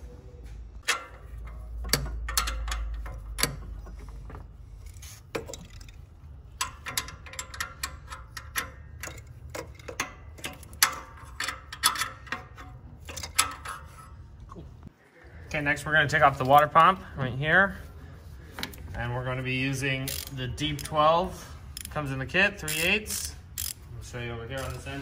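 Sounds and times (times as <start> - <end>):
wrench clicking on nuts: 0.8 - 3.8, 4.8 - 14.0, 20.0 - 21.0, 22.6 - 23.8.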